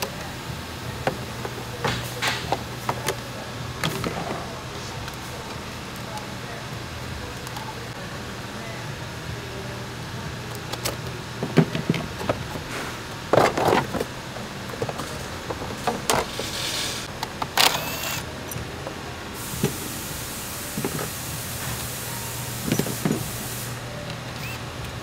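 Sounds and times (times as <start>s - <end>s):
tools and plastic parts clattering: 1.0s - 5.2s, 10.7s - 18.6s.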